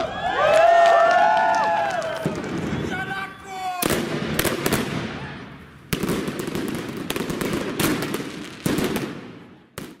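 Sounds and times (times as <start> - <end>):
firework crackling: 1.2 - 10.0
firework bangs: 1.6 - 3.2, 3.8 - 10.0.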